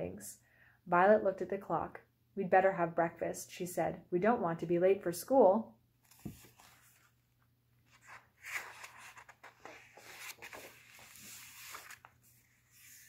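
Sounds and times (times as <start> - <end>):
book pages rustling: 6.0 - 13.0.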